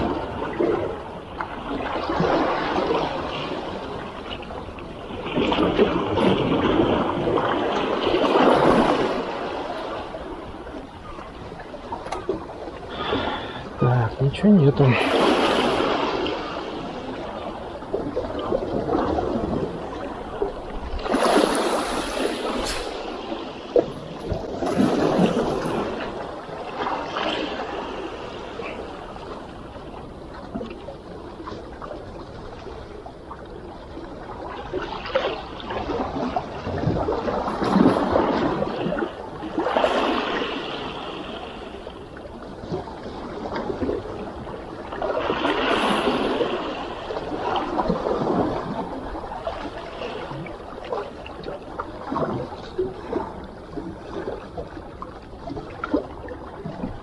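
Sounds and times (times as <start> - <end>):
sea waves washing over rocks: 0.0 - 57.0.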